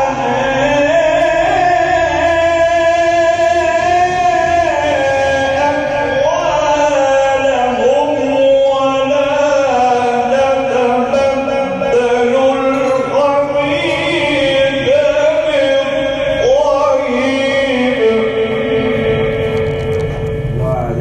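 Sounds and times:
man chanting melodically: 0:00.0 - 0:21.0.

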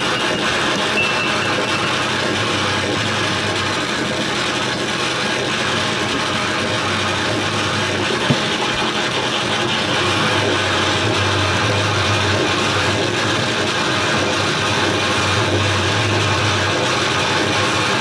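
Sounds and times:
low hum: 0:00.0 - 0:05.5
grinding electronic noise: 0:00.0 - 0:18.0.

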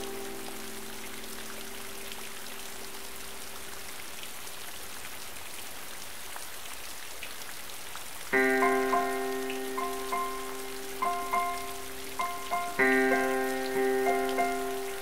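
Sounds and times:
background music chord: 0:00.0 - 0:02.2, 0:08.4 - 0:15.0
light rain on pond water: 0:00.0 - 0:15.0.

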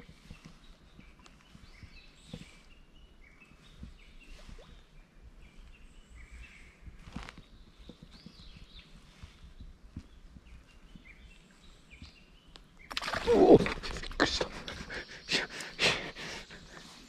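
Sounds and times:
small birds chirping: 0:00.0 - 0:17.0
brief rustle: 0:07.0 - 0:08.4.

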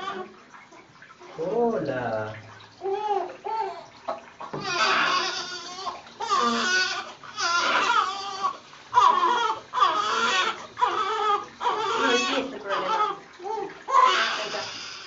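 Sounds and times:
newborn baby crying: 0:00.0 - 0:00.3, 0:02.8 - 0:03.9, 0:04.6 - 0:15.0.

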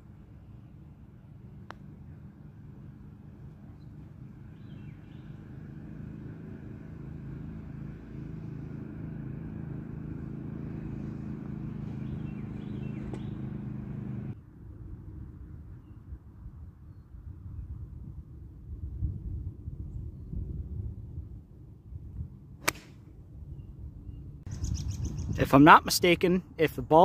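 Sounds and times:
motor engine humming: 0:00.0 - 0:14.4
faint bird chirps: 0:23.5 - 0:25.4.

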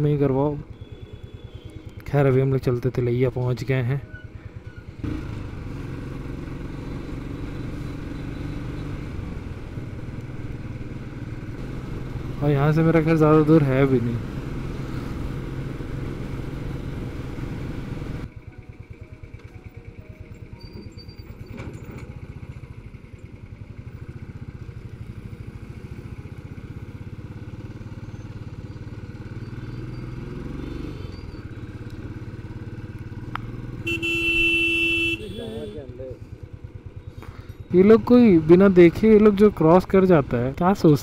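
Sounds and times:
motorcycle engine running: 0:00.2 - 0:03.2, 0:04.2 - 0:41.0.

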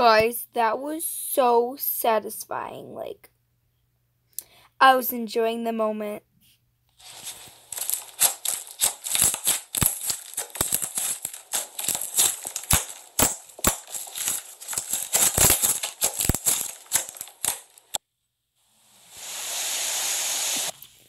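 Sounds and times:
slime crackling and popping: 0:07.0 - 0:18.0.

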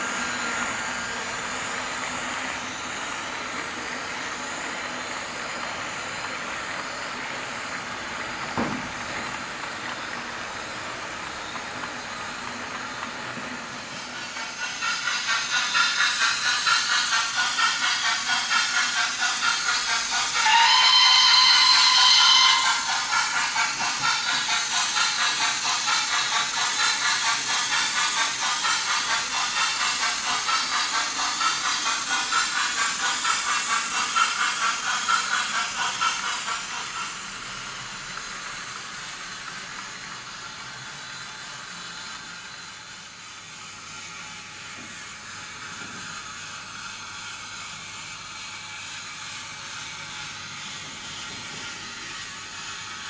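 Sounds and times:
model train wheels running: 0:00.0 - 0:53.0
steam locomotive chuffing: 0:00.0 - 0:53.0
model train steam whistle: 0:19.6 - 0:24.6.

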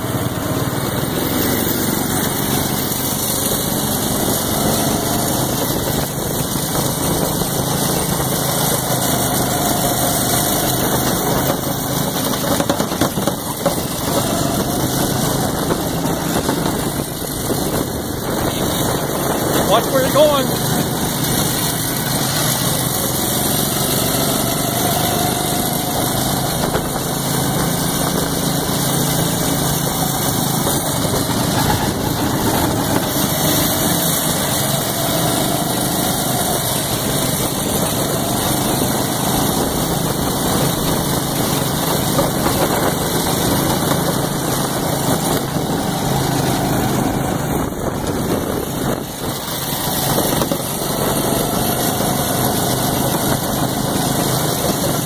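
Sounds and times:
go-kart engines running: 0:00.0 - 0:55.0
steady rushing noise: 0:00.0 - 0:55.0.

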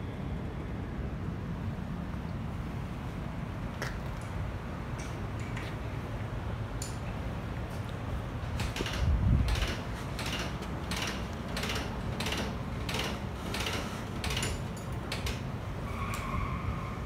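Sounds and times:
brief squeak: 0:15.8 - 0:17.0.

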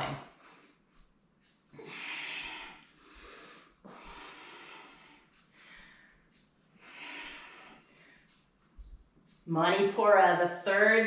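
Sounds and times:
woman breathing hard: 0:01.7 - 0:08.5.

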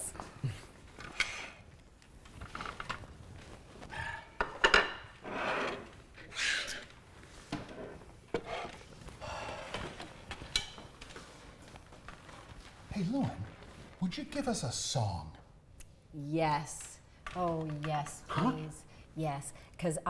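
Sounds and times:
plates and cutlery knocking: 0:04.4 - 0:05.2
rustling: 0:08.8 - 0:14.6.

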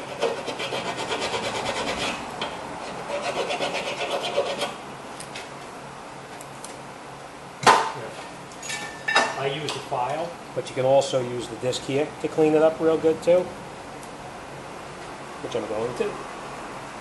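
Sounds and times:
hand file rasping on steel: 0:00.0 - 0:02.2, 0:03.0 - 0:04.8.

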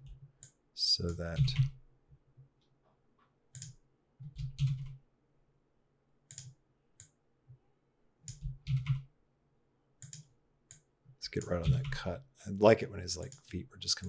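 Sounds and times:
keyboard and mouse clicks: 0:03.2 - 0:05.0, 0:06.3 - 0:07.2, 0:08.2 - 0:09.1, 0:10.0 - 0:12.1.

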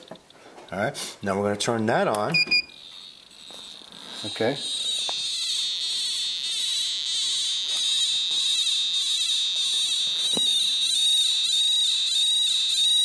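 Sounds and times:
high tone with rasping pulse: 0:02.7 - 0:13.0.

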